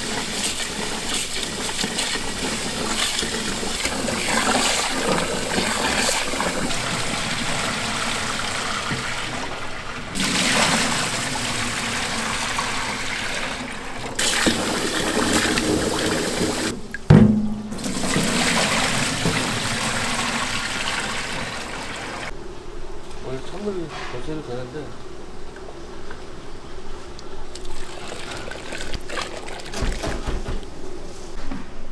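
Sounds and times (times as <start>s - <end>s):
water pouring into steel sink: 0.0s - 16.8s, 17.7s - 22.3s, 27.6s - 30.0s
tap water splashing into pot: 13.5s - 22.1s
sharp metallic knock: 17.1s - 17.8s.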